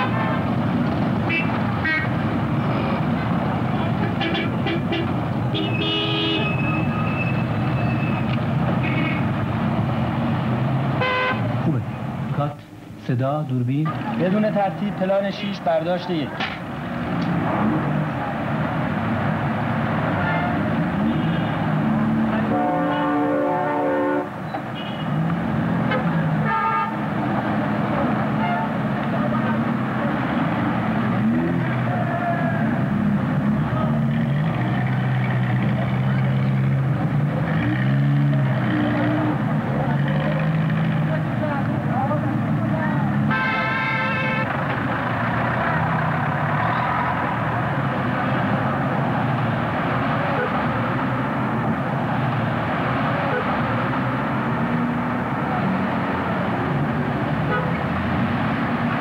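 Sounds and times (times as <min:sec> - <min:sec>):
car horns honking: 0:00.0 - 0:00.4, 0:01.2 - 0:02.2, 0:03.9 - 0:09.3, 0:11.0 - 0:11.5, 0:20.1 - 0:21.8, 0:22.4 - 0:25.2, 0:25.8 - 0:27.0, 0:28.3 - 0:28.8, 0:43.2 - 0:44.6
street traffic: 0:00.0 - 0:59.0.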